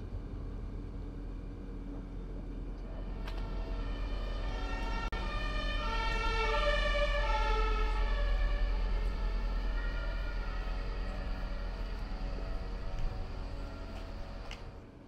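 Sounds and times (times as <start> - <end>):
two-tone emergency siren: 3.0 - 14.8.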